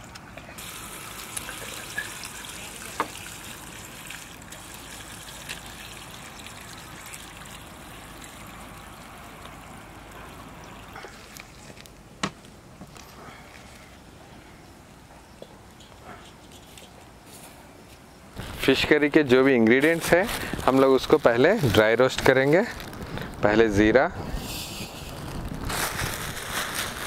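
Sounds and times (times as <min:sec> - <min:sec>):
water trickling and sloshing: 0:00.6 - 0:11.9.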